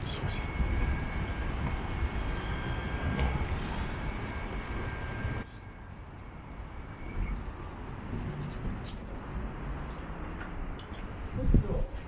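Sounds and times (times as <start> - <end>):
faint steady tones: 0.0 - 8.3
low rumble of traffic: 0.0 - 12.0
steady background hum: 0.0 - 12.0.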